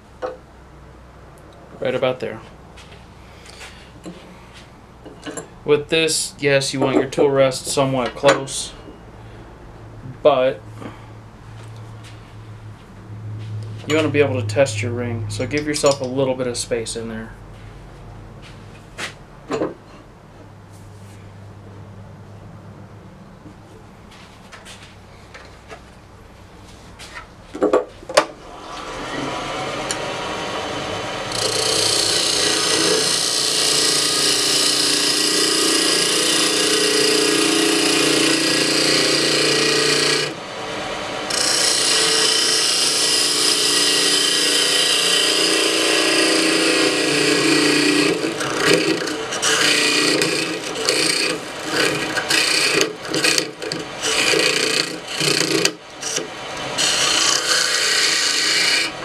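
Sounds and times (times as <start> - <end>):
lathe tool scraping wood: 28.4 - 59.0.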